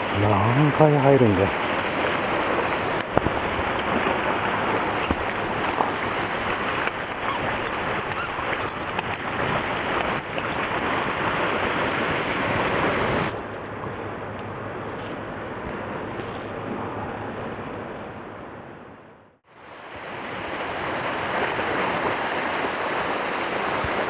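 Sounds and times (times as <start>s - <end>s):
sea surf washing against rocks: 0.0s - 13.4s, 19.5s - 24.0s
wind on the microphone: 0.0s - 13.4s
faint clicks: 5.0s - 10.6s.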